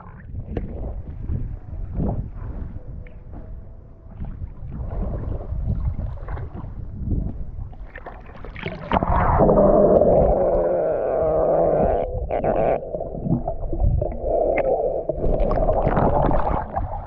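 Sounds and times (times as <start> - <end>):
water lapping and splashing: 0.0 - 17.0
underwater rush and gurgle: 4.1 - 17.0.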